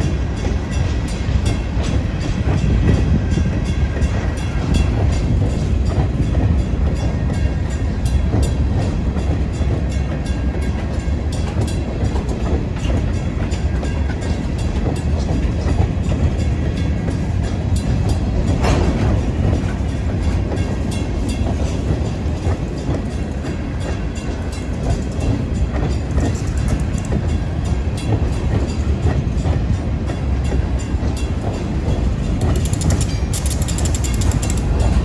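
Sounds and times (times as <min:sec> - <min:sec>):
freight train rumbling past: 0:00.0 - 0:35.0
wheels clicking over rail joints: 0:00.4 - 0:35.0
rapid high clicking: 0:32.4 - 0:35.0.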